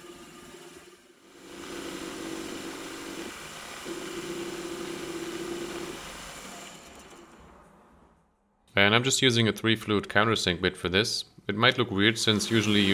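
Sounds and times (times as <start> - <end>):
bit cutting metal: 12.2 - 12.9.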